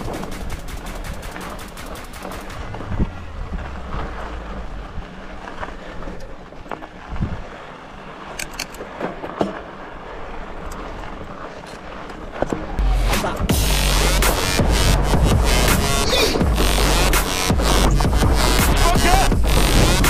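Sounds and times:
bike hub ticking: 0.0 - 4.8
bike rolling over rocky trail: 0.0 - 13.5
wind on microphone: 2.5 - 5.4, 7.0 - 7.6.

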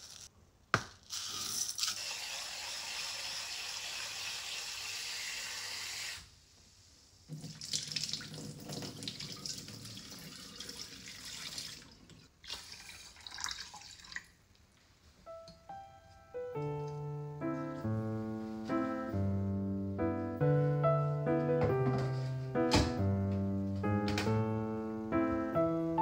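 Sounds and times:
water splashing into metal sink: 7.3 - 14.3.

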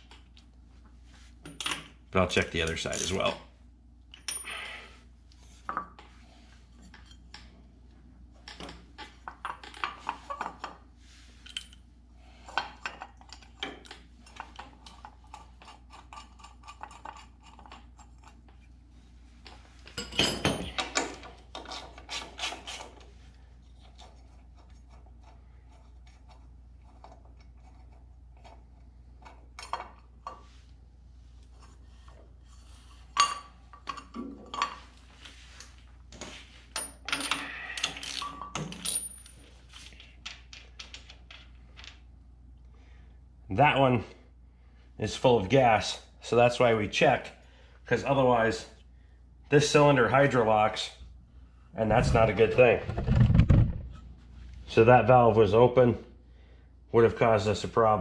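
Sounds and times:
metal tools clinking: 36.7 - 41.9.

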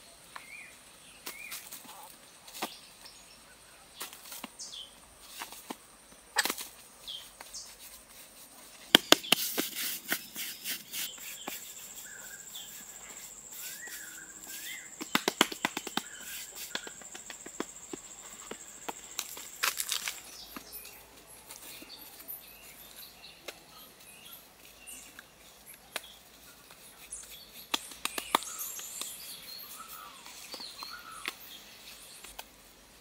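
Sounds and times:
scraping sandy soil: 7.1 - 20.6
bird chirping: 8.6 - 32.3.

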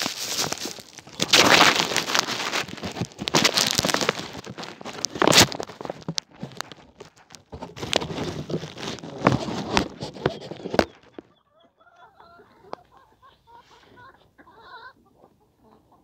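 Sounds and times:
crackling and rustling with clicks: 0.0 - 11.4
hens clucking softly: 10.1 - 16.0.

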